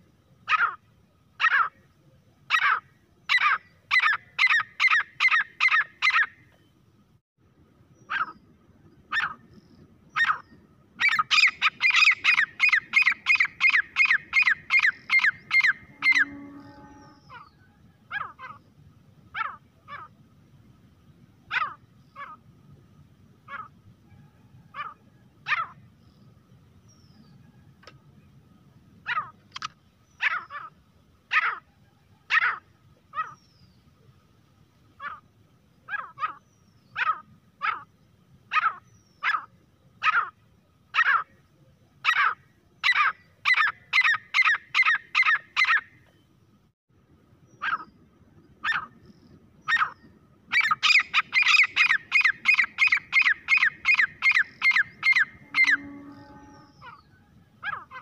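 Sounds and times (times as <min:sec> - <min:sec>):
francolin calling: 0:02.5 - 0:06.4, 0:09.1 - 0:18.7, 0:42.0 - 0:45.9, 0:47.5 - 0:58.0.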